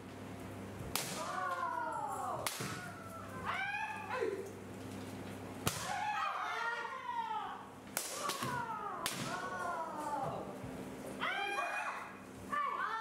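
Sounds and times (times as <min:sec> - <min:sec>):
bamboo swords striking armour: 0:00.9 - 0:01.3.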